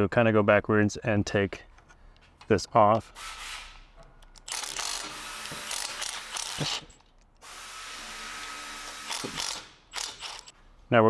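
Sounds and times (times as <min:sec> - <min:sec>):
handheld power tool running: 0:04.4 - 0:10.5.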